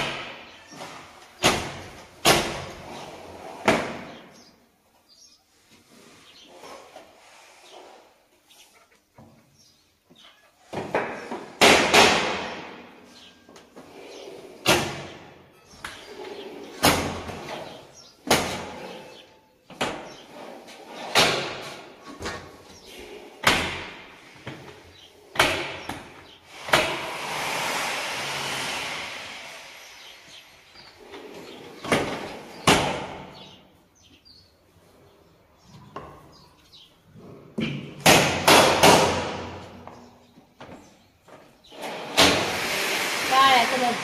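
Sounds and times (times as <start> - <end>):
sliding window banging shut: 41.7 - 43.1.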